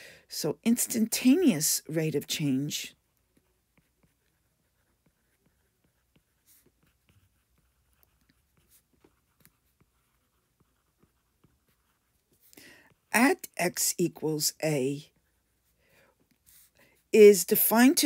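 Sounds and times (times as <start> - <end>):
stylus writing on tablet screen: 0.1 - 18.0.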